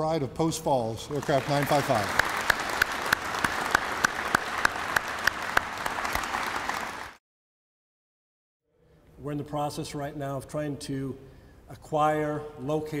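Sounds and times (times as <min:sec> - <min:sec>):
audience applauding: 0:01.1 - 0:07.2
close hands clapping: 0:01.1 - 0:07.2.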